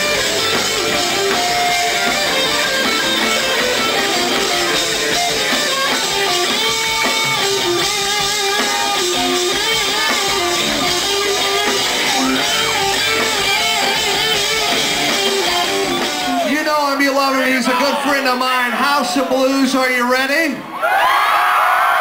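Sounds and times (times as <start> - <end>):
electric guitar: 0.0 - 16.5
live band playing: 0.0 - 20.4.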